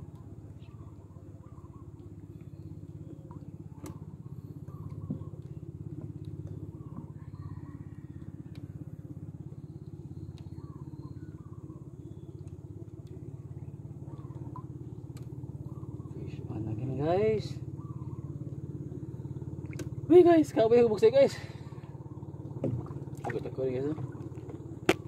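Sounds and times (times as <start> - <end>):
small boat engine putt-putt: 0.0 - 25.0
faint chirping: 0.4 - 19.7.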